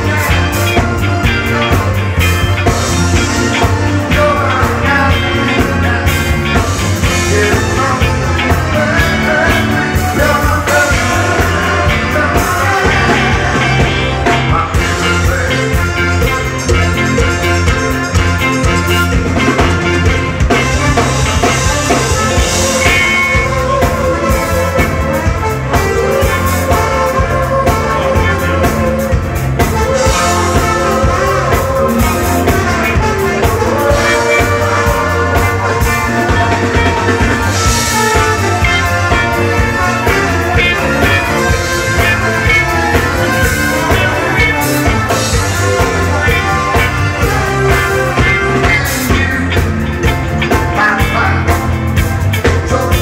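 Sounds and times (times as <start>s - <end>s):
live band dance music: 0.0s - 53.0s
saxophone: 0.0s - 53.0s.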